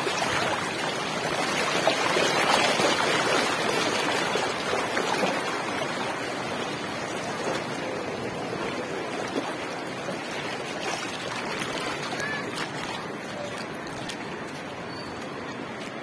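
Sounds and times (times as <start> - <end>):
floodwater rushing: 0.0 - 16.0
splashing of person wading: 8.4 - 16.0.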